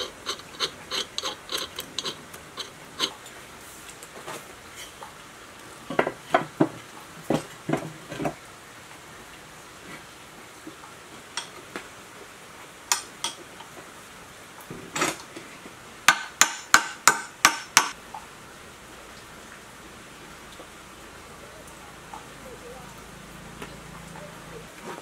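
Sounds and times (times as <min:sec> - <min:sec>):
sharp metal taps: 0:16.1 - 0:18.0.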